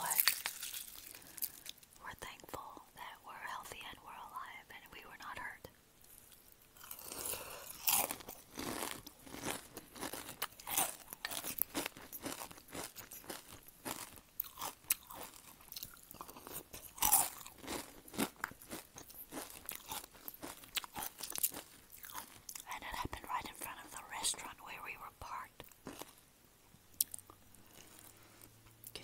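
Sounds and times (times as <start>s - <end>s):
chewing crunchy cereal: 0.0s - 2.7s, 6.0s - 24.5s, 25.2s - 26.2s, 26.9s - 29.0s.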